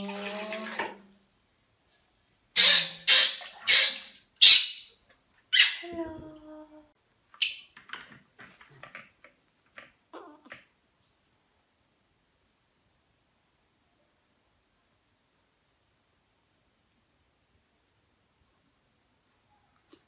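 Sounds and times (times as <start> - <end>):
monkey squeaks: 2.6 - 4.8, 5.6 - 5.8
baby monkey screaming: 2.6 - 4.9, 5.6 - 5.8.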